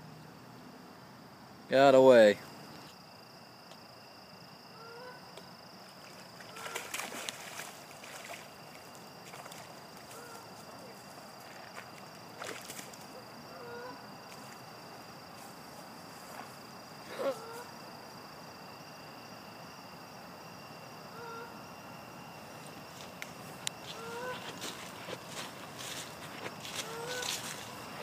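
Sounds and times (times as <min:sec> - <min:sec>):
insects droning: 0:00.0 - 0:28.0.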